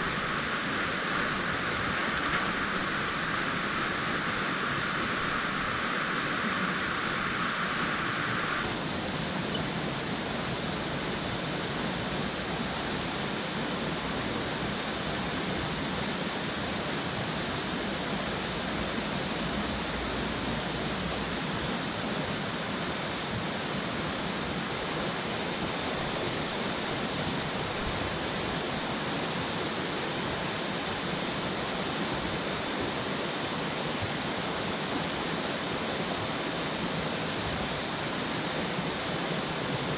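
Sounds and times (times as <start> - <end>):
river flowing over rocks: 0.0 - 39.9.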